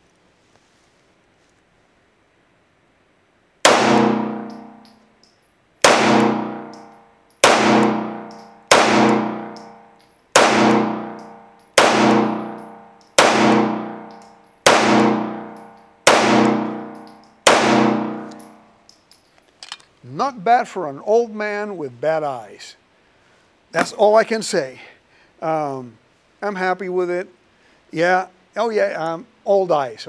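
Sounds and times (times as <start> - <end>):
pistol shots echoing: 3.7 - 4.9, 5.8 - 18.6.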